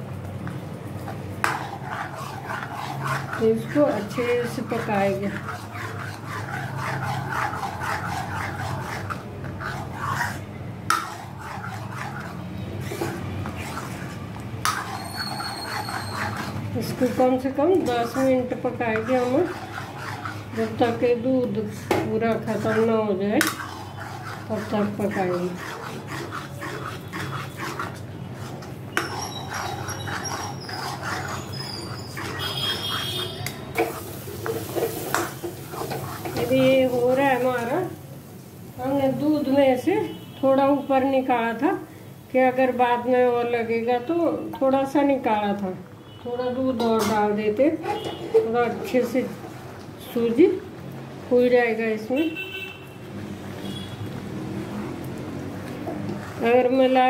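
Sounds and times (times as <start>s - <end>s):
spoon scraping steel pan: 1.0s - 37.9s, 46.6s - 50.3s, 55.6s - 57.0s.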